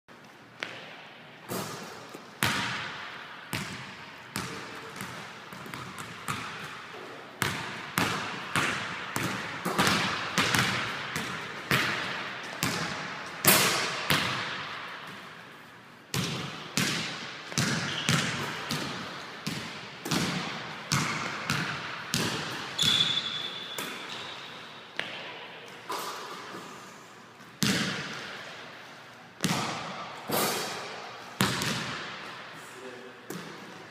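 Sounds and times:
basketballs bouncing on hardwood: 7.4s - 15.2s, 16.1s - 24.3s, 31.4s - 32.2s.

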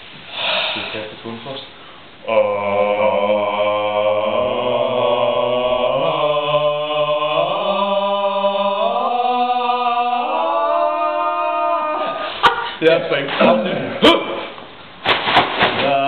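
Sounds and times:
men singing a cappella: 2.2s - 12.4s.

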